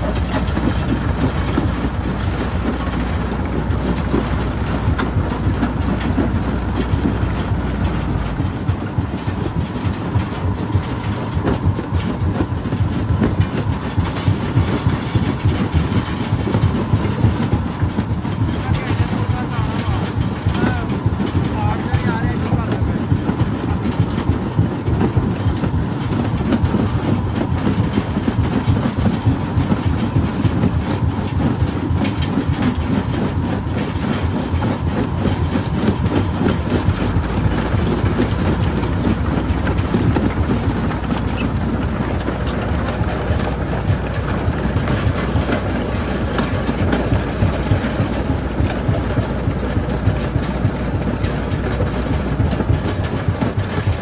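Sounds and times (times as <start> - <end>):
deep low rumble: 0.0 - 16.5
jaw crusher rumbling and rattling: 0.0 - 54.0.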